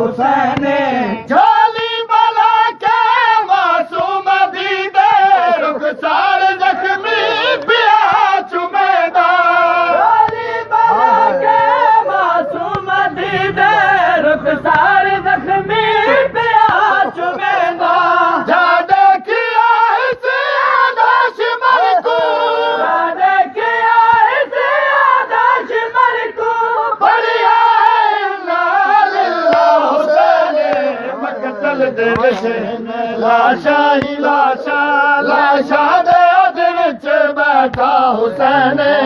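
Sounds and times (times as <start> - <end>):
voices chanting together: 0.0 - 39.0
chest-beating slaps: 29.5 - 29.8, 30.6 - 30.9, 32.1 - 32.5, 37.7 - 38.0.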